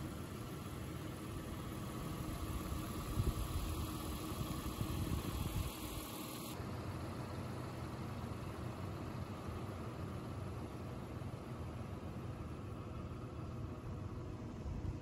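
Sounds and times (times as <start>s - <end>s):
wind buffeting microphone: 3.0s - 5.7s.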